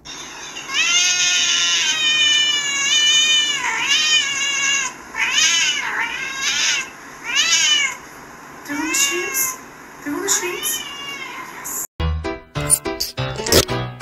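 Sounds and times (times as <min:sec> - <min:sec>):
cat meowing loudly: 0:00.1 - 0:08.0, 0:08.7 - 0:09.6, 0:10.5 - 0:11.9.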